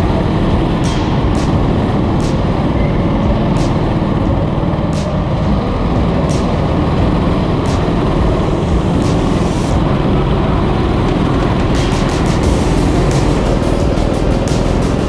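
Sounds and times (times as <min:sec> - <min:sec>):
go-kart engines rumbling: 0:00.0 - 0:15.0.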